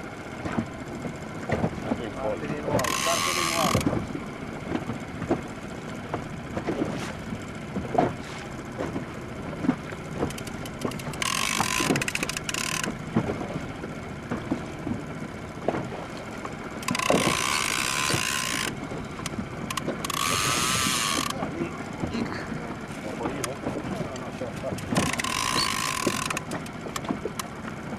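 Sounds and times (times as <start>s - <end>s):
clicks and knocks of reel and rod: 0.0s - 27.9s
fishing reel drag buzzing: 2.7s - 3.9s, 10.4s - 12.9s, 16.8s - 21.4s, 24.9s - 26.8s.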